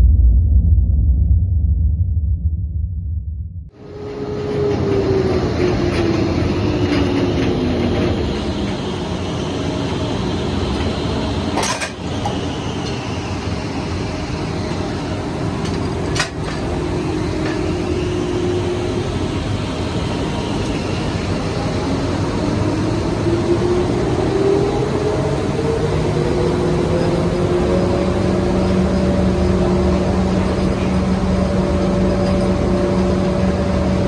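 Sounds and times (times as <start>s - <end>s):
drilling rig machinery rumbling: 3.7s - 34.0s
humming tone: 14.8s - 34.0s.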